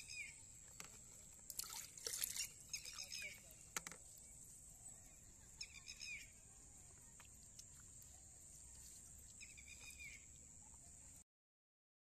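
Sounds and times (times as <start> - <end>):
bird chirps: 0.0 - 0.5, 2.3 - 3.7, 4.8 - 6.4, 9.3 - 10.4.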